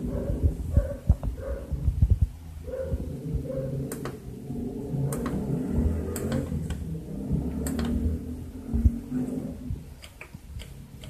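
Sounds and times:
washing machine hum and rumble: 0.0s - 10.0s
sharp clicks and knocks: 3.8s - 4.2s, 5.0s - 8.1s, 9.9s - 11.0s.

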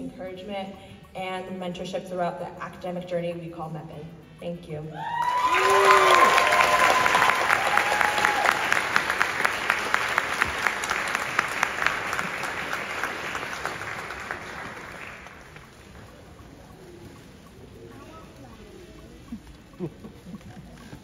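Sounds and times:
person whooping: 5.0s - 8.8s
audience applauding: 5.1s - 16.1s.

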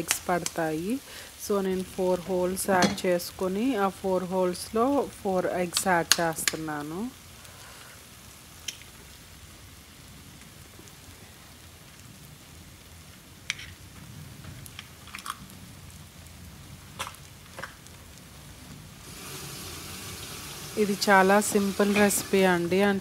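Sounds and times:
oil popping and crackling: 0.0s - 0.8s, 4.8s - 23.0s
food sizzling in a pan: 0.0s - 23.0s.

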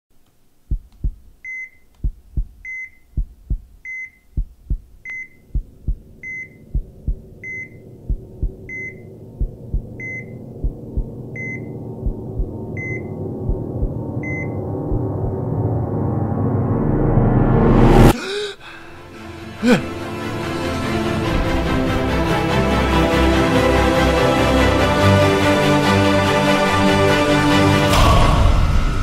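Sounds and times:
heartbeat double thump: 0.7s - 1.3s, 2.0s - 15.6s
heart monitor beep: 0.7s - 15.4s
low drone: 5.4s - 18.2s.

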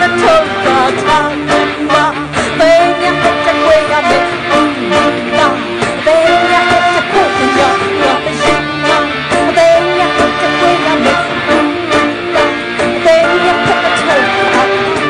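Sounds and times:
instrumental melody line: 0.0s - 15.0s
steady drum beat: 0.0s - 15.0s.

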